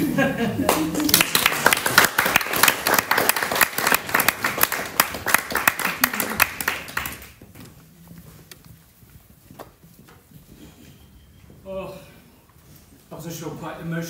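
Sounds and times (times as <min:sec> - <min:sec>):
congregation applauding: 0:00.6 - 0:07.4.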